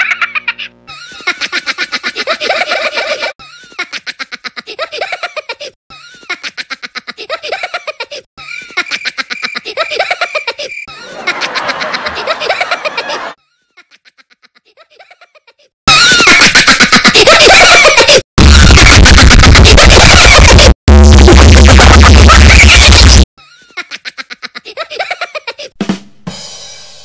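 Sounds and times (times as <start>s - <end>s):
high-pitched cartoon laugh: 0.0s - 25.8s.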